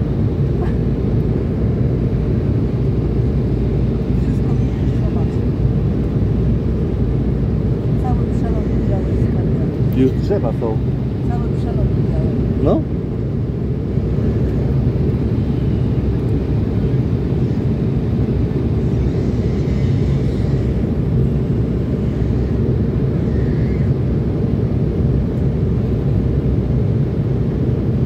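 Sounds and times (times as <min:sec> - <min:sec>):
jet engines: 0:00.0 - 0:28.0.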